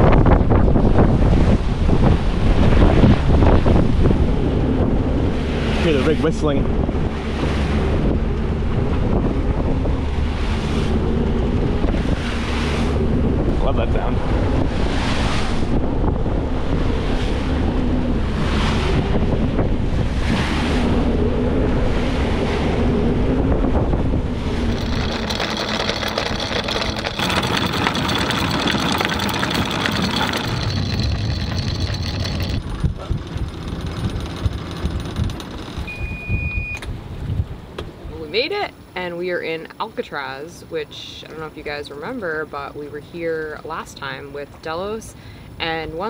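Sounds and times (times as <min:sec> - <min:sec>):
wind rushing over microphone: 0:00.0 - 0:38.3
faint steady whistle: 0:35.9 - 0:36.8.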